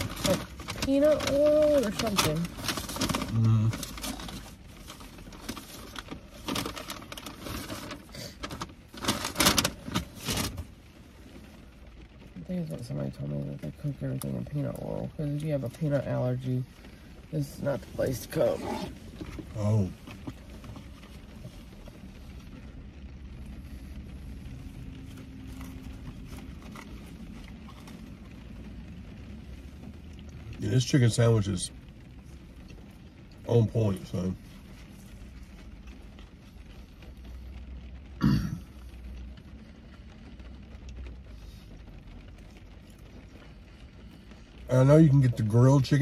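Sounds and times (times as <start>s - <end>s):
paper bag rustling: 0.0s - 10.7s
low rumble inside car: 0.0s - 46.0s.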